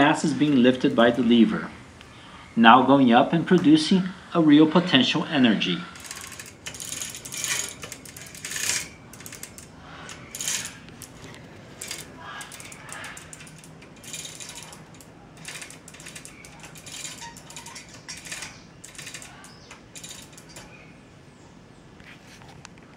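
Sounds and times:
chains rattling: 6.0s - 21.0s
ratchet mechanism clicking: 6.0s - 21.0s.

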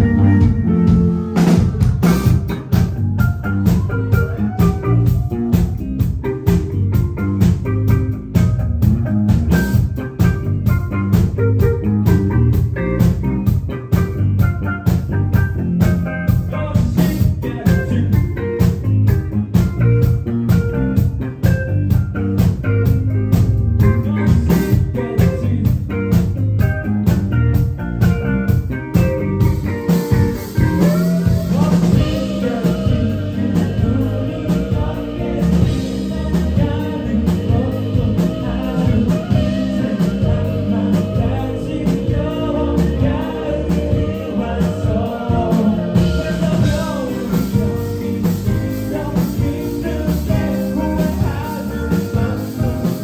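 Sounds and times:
drum beat: 0.0s - 14.1s, 29.0s - 53.0s
bass: 0.0s - 53.0s
electric guitar: 0.0s - 53.0s.

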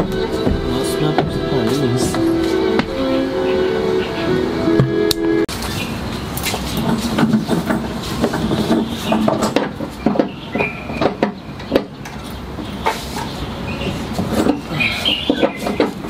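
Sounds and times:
hand tools clicking and knocking: 6.4s - 13.3s, 14.1s - 16.0s.

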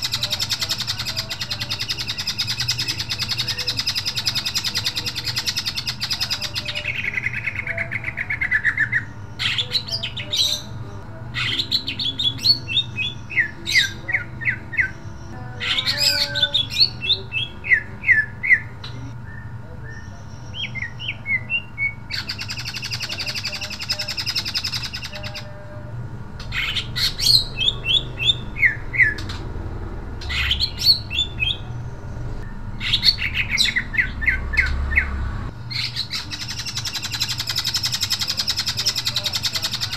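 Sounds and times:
harsh rasping bird calls: 0.0s - 39.9s
bird whistling song: 11.4s - 25.5s, 26.4s - 29.4s, 30.2s - 31.7s, 32.4s - 39.9s.

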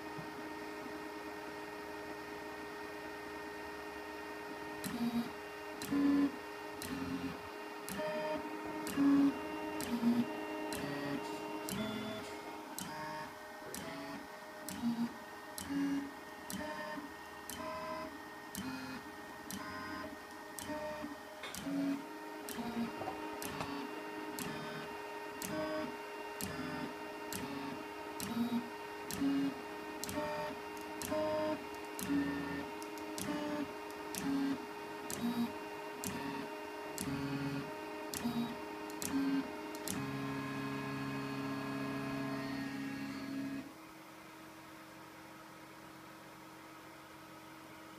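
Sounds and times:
steady hum: 0.0s - 47.9s.

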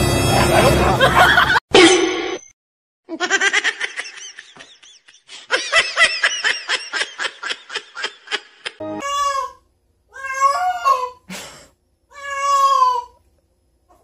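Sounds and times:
person laughing: 0.3s - 2.0s, 3.1s - 8.8s.

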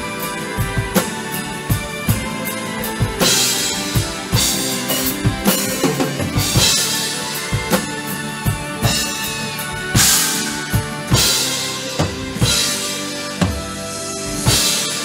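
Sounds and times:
drum kit beat: 0.0s - 15.0s
recorded music track: 0.0s - 15.0s
cymbal crashes: 2.8s - 15.0s.

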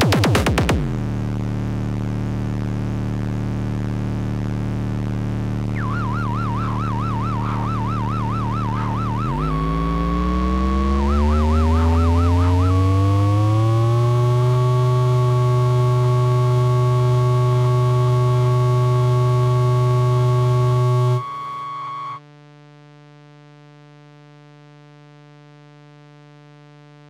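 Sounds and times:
synthesizer drone: 3.3s - 22.2s.

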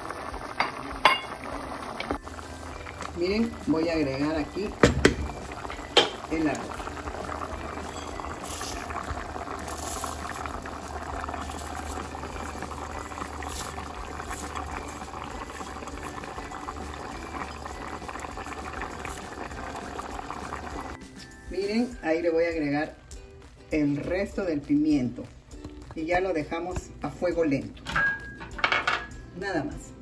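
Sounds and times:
rice being poured: 0.0s - 21.0s
broth boiling in a pan: 0.0s - 27.1s.

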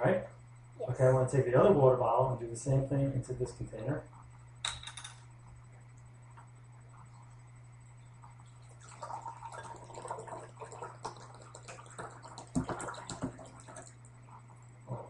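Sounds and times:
water pouring into glass container: 8.6s - 14.0s.

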